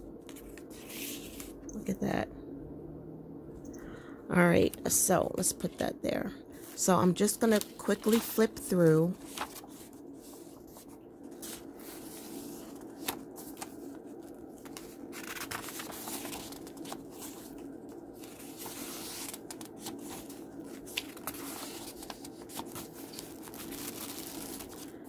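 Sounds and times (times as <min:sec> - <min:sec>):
steady low hum: 0:00.0 - 0:25.0
paper pages rustling: 0:00.2 - 0:01.6, 0:06.6 - 0:25.0.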